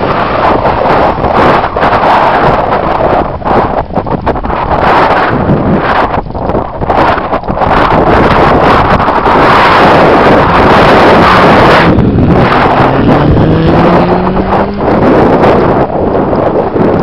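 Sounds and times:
wind buffeting microphone: 0:00.0 - 0:17.0
low hum rising in pitch: 0:09.9 - 0:16.0.

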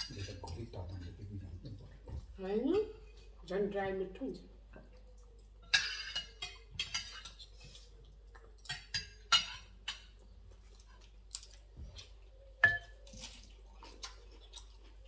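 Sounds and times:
cutlery clinking against plates: 0:00.0 - 0:01.3, 0:05.6 - 0:07.9, 0:08.6 - 0:10.2, 0:11.4 - 0:14.8.

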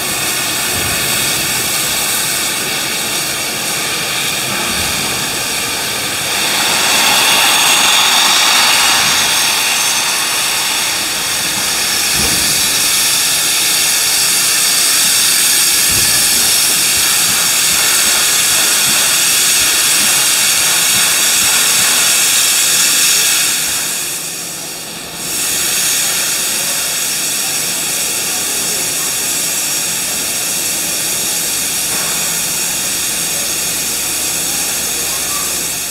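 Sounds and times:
steam locomotive hissing steam: 0:00.0 - 0:35.9.

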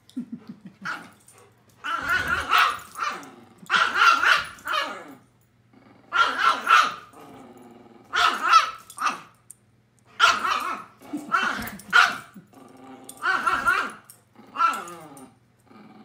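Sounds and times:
dogs barking and growling: 0:00.3 - 0:09.4, 0:10.1 - 0:16.0.

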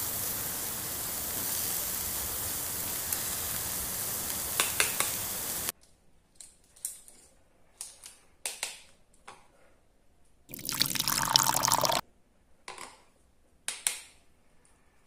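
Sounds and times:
liquid pouring onto plastic plate: 0:10.5 - 0:12.0.

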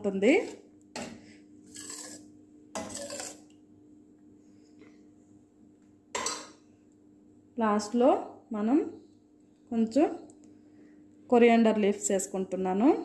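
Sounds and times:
ladle scraping steel pot: 0:01.0 - 0:03.6.

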